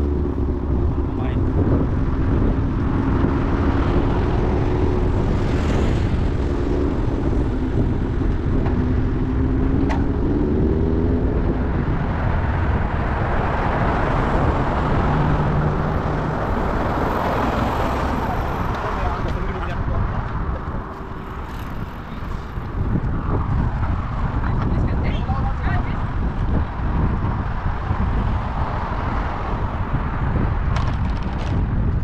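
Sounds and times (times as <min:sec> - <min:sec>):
motor vehicle engine drone: 0:00.0 - 0:32.0
wind on microphone: 0:00.0 - 0:32.0.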